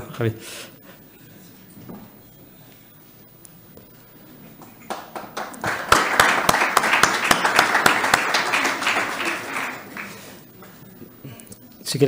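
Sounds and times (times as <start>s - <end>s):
audience applauding: 4.5s - 10.8s.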